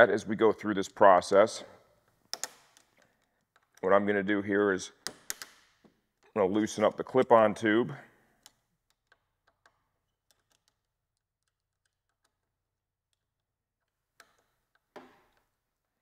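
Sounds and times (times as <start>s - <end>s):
hand tool ticks and clicks: 2.3s - 3.9s.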